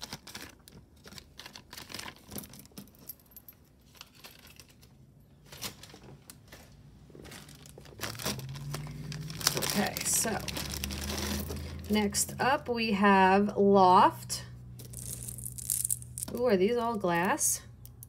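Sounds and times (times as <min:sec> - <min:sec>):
rustling: 0:03.8 - 0:11.9
bead bracelet clicking and jingling: 0:14.8 - 0:16.4.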